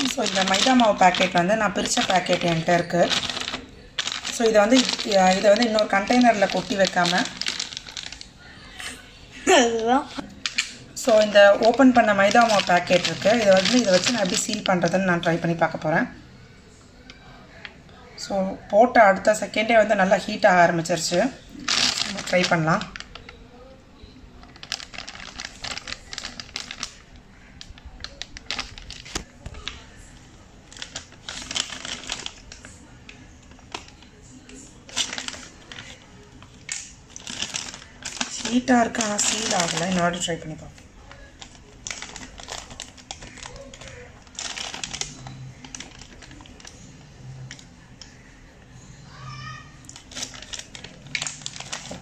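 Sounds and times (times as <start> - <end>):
plastic packet crinkling: 0.0 - 8.7, 9.5 - 16.2, 19.2 - 23.7, 24.4 - 48.4, 49.8 - 52.0.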